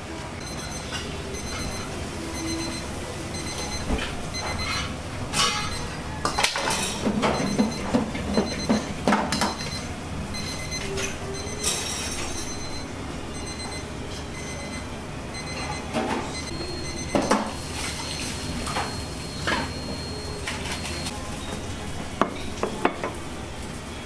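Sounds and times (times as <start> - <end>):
kitchen timer beeping: 0.4 - 4.8, 7.2 - 21.1.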